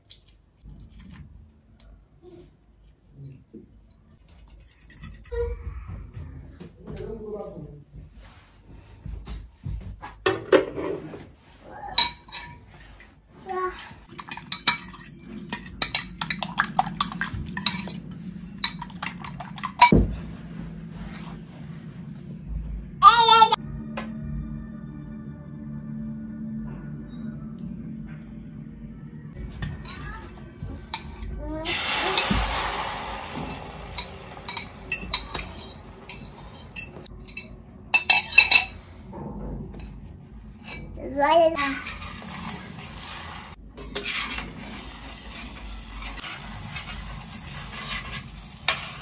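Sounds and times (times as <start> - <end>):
fork clinking in metal bowl: 12.0 - 13.1, 14.1 - 19.9, 33.5 - 38.8.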